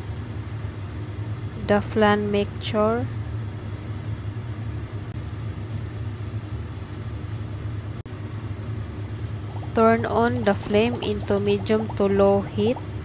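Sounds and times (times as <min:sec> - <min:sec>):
low rumbling hum: 0:00.0 - 0:13.0.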